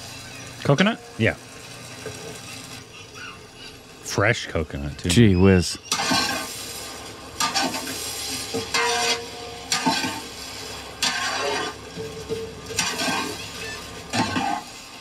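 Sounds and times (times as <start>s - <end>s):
faint sizzle: 0.0s - 15.0s
metal ladle scraping frying pan: 5.8s - 6.6s, 7.4s - 14.7s.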